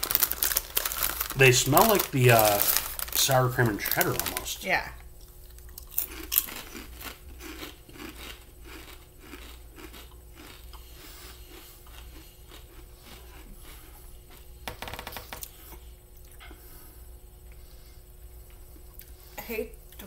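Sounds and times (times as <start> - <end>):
potato chips crunching: 0.0 - 4.6, 5.2 - 13.8.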